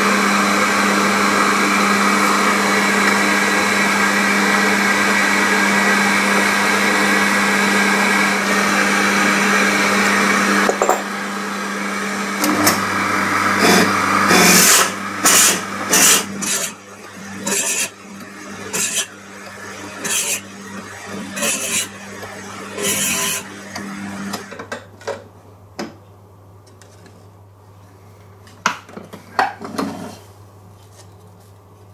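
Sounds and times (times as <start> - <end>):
drill press humming: 0.1 - 24.6
drill bit cutting wood: 12.3 - 24.6.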